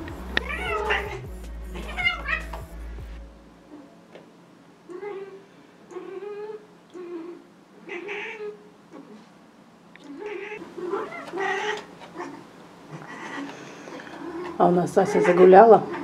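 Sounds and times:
cat yowling: 0.4s - 1.2s, 6.0s - 8.6s, 10.2s - 13.5s.

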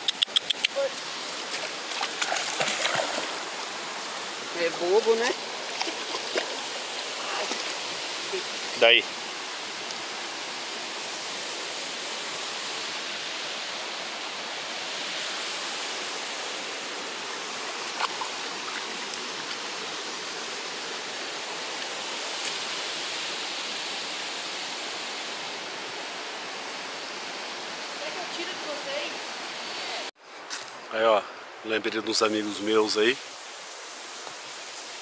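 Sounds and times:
river water rushing over rocks: 0.8s - 29.0s.

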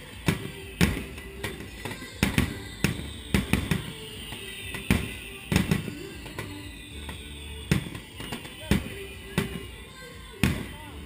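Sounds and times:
fireworks bursting: 0.0s - 10.8s.

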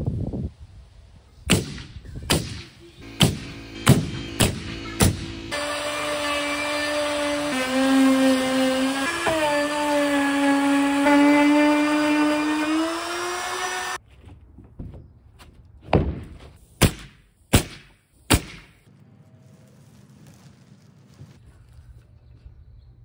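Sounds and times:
wood router whining: 3.0s - 14.0s.

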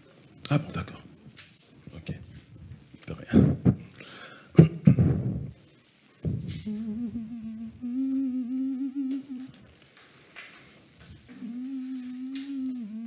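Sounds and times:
man humming held notes: 6.4s - 9.7s, 11.2s - 13.0s.

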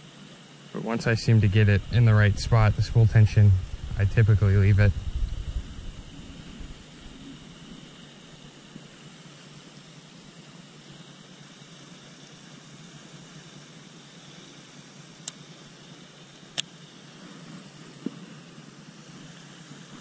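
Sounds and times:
low outdoor rumble: 0.7s - 9.2s.

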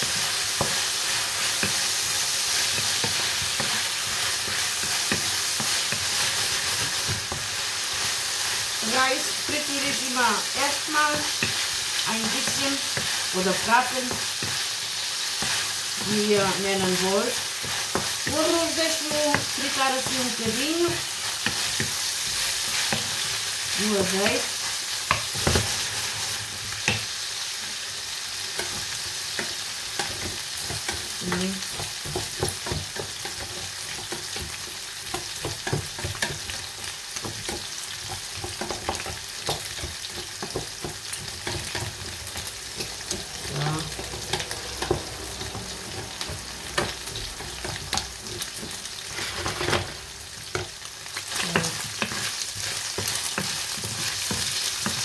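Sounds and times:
rice sizzling in hot oil: 0.0s - 55.0s
spoon scraping and tapping pan: 28.5s - 43.3s, 43.9s - 50.7s.

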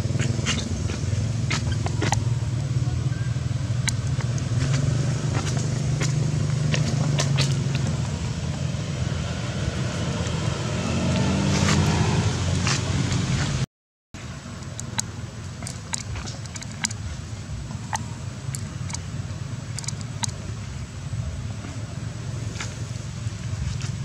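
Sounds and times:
engine accelerating: 0.0s - 13.6s
vehicle engine humming: 0.0s - 24.0s
sharp clicks: 3.8s - 7.9s, 14.6s - 17.0s, 17.9s - 19.1s, 19.7s - 20.4s.

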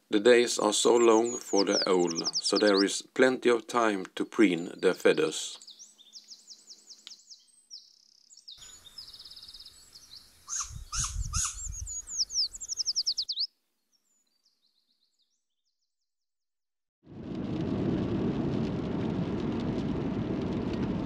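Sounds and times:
small songbirds singing: 0.7s - 3.0s, 4.4s - 16.0s.

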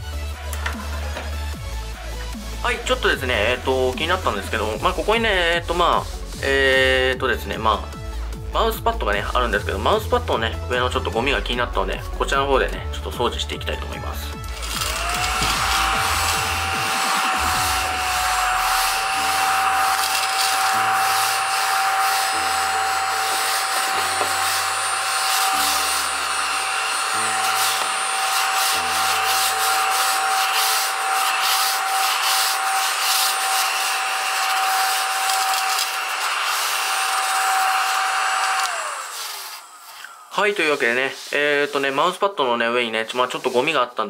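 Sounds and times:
motor whine: 14.4s - 41.0s
brushes rubbing on mouse pad: 14.6s - 37.4s, 39.1s - 42.3s, 43.0s - 43.8s.

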